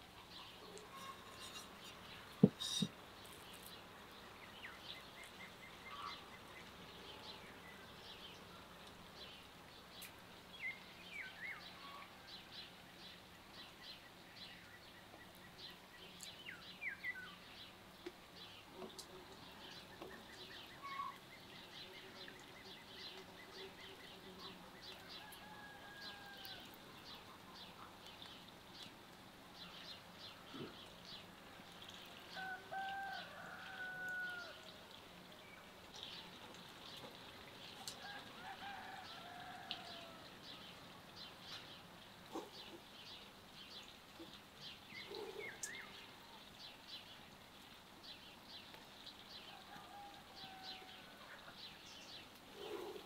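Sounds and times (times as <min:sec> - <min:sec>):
birds chirping: 0:00.2 - 0:08.1, 0:35.6 - 0:46.3.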